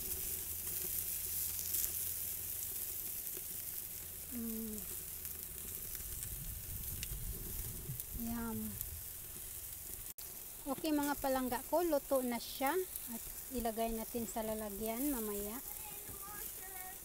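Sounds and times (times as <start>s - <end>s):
meat sizzling on a grill: 0.0s - 17.0s
person humming: 4.3s - 4.9s.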